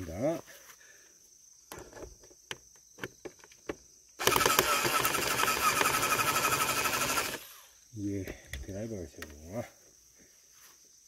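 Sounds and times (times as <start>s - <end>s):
power drill-driver running: 4.2s - 7.6s.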